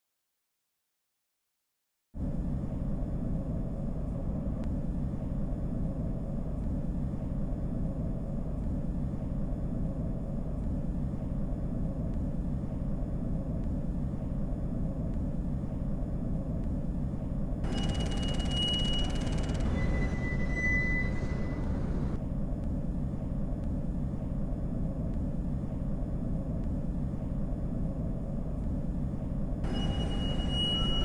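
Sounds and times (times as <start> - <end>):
low train-like rumble: 2.2 - 31.0
high whistle-like tone: 17.7 - 22.2, 29.6 - 31.0.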